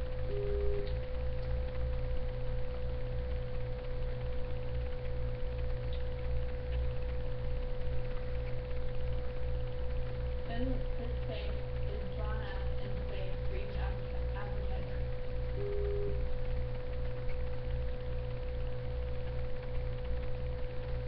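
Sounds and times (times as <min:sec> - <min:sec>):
electrical whine: 0:00.0 - 0:21.0
pulsing low hum: 0:00.0 - 0:21.0.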